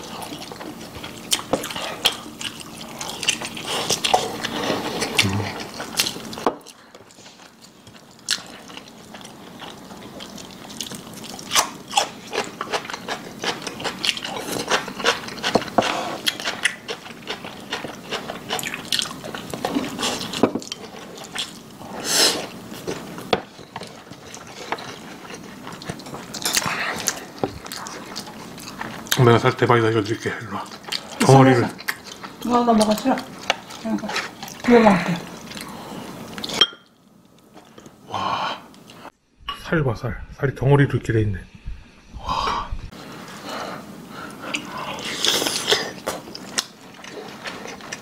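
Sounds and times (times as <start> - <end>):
wet chewing and lip smacking: 0.2 - 21.6.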